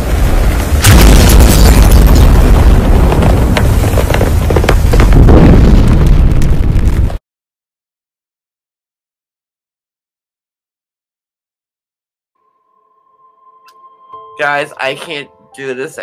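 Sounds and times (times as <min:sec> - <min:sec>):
crackles: 0:00.0 - 0:07.2
deep rumbling boom: 0:00.0 - 0:07.2.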